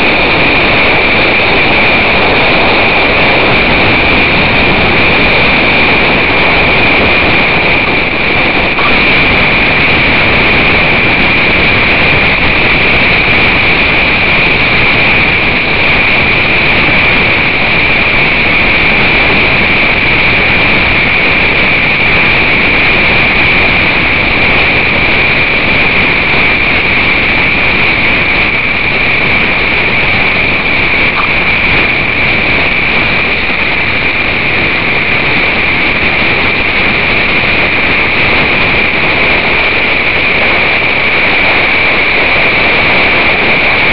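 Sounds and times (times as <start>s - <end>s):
high-pitched whine: 0.0s - 43.6s
rush of wind and water: 0.0s - 43.9s.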